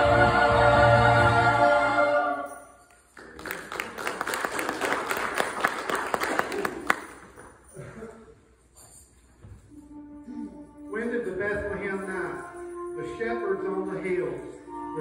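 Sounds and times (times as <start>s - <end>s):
choir singing held chord: 0.0s - 2.6s
audience applause: 3.2s - 7.3s.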